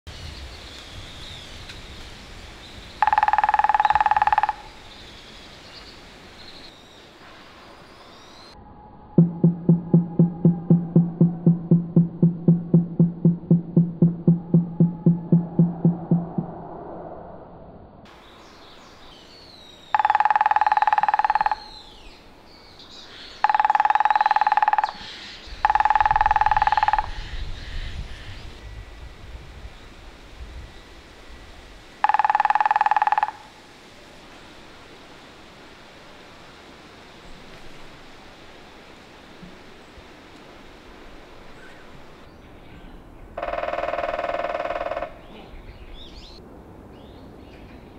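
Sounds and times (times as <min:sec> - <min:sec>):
faint outdoor background: 0:00.1 - 0:47.9
woodpecker drumming on branch: 0:03.0 - 0:04.9, 0:09.2 - 0:16.4, 0:19.9 - 0:21.8, 0:23.4 - 0:27.3, 0:32.0 - 0:33.6, 0:43.4 - 0:45.3.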